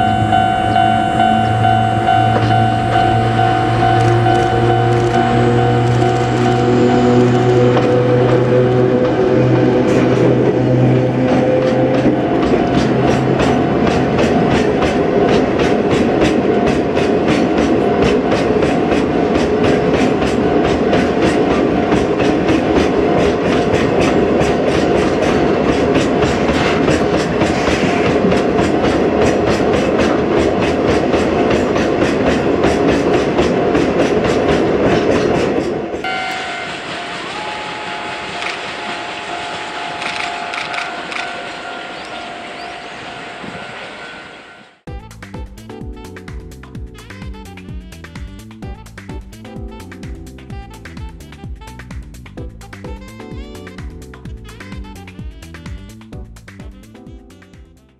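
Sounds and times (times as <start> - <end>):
level-crossing alarm ringing: 0.0 - 14.5, 36.0 - 44.8
train rumbling: 0.0 - 57.5
train wheels clacking over rail joints: 0.3 - 41.8.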